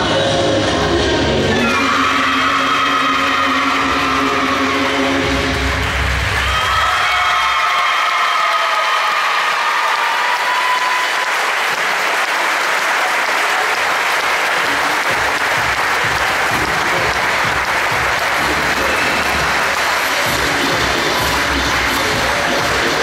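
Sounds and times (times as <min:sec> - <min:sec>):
music: 0:00.0 - 0:07.2, 0:14.5 - 0:23.0
audience applauding: 0:01.8 - 0:23.0.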